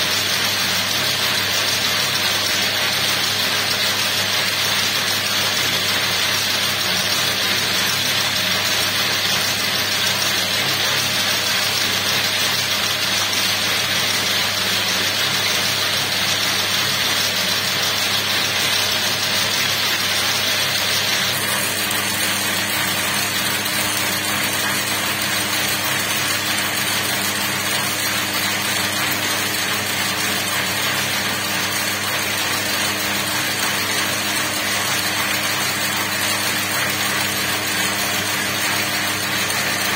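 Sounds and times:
braiding machine running: 0:00.0 - 0:39.9.

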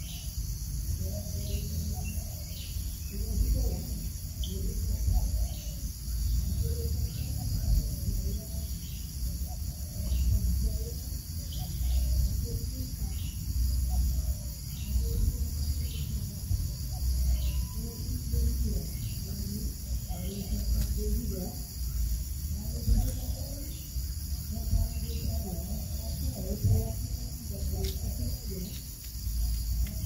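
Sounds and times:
high-pitched insect chorus: 0:00.0 - 0:30.0.

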